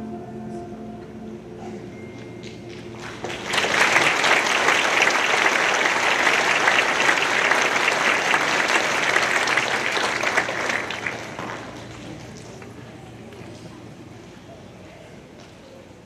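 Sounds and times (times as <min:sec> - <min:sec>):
audience applause: 0:02.7 - 0:12.7.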